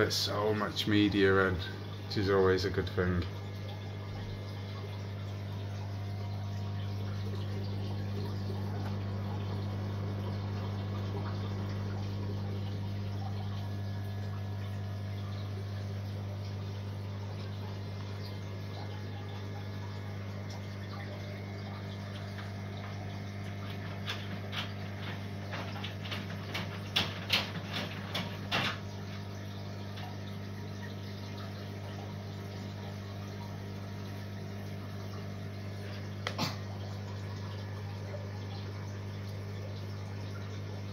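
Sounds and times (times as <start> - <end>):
aquarium pump hum: 0.0 - 40.9
water trickling: 0.0 - 40.9.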